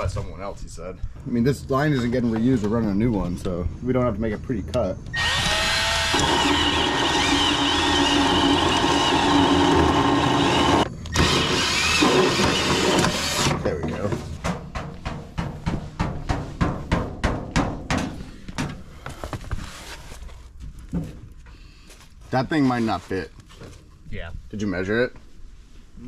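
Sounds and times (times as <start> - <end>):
band saw whining: 5.1 - 13.6
sharp knocks and clatters: 12.4 - 18.8.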